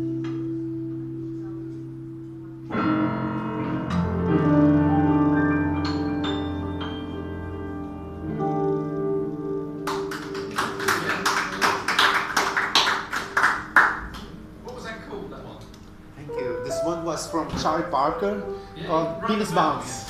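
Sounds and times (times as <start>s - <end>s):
grand piano: 0.0s - 20.0s
audience applause: 9.9s - 14.3s.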